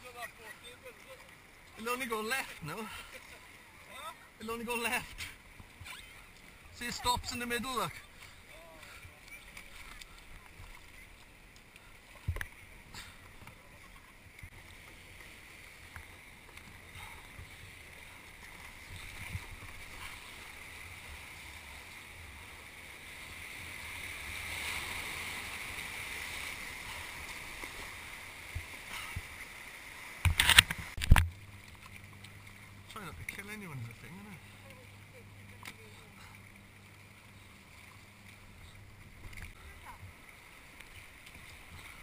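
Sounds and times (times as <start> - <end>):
water washing around kayak hull: 0.0 - 42.0.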